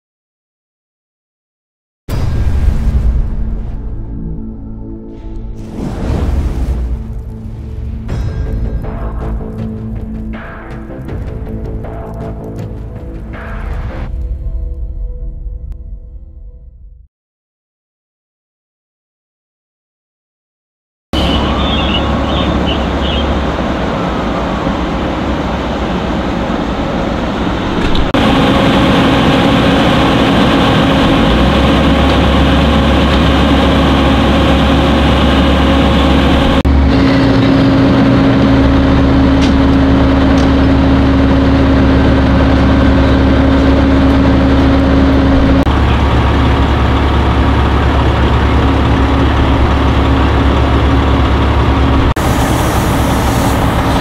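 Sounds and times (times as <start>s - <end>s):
diesel engines rumbling: 21.2s - 54.0s.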